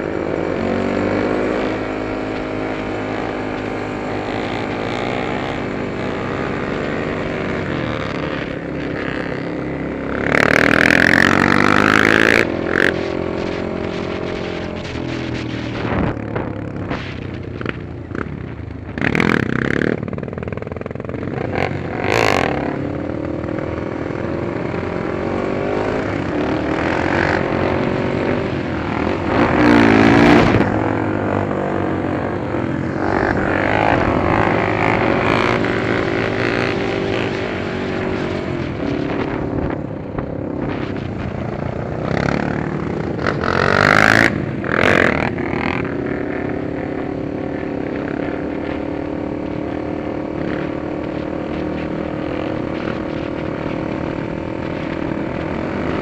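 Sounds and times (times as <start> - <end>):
quad engines revving: 0.0 - 18.3, 18.9 - 56.0
wind gusts on microphone: 10.3 - 56.0.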